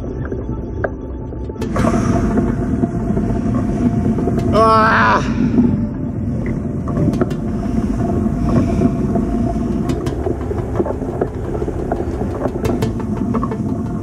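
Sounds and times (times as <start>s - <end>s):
wind buffeting microphone: 1.6s - 14.0s.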